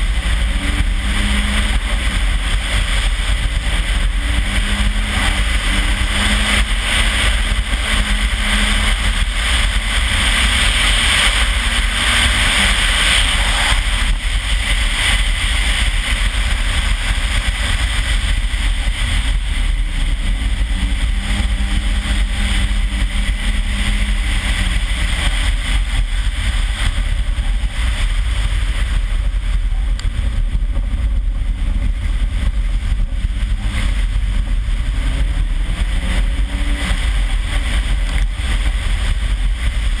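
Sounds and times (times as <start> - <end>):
car engine accelerating: 0.0 - 40.0
tyres hissing through slush: 0.5 - 19.7.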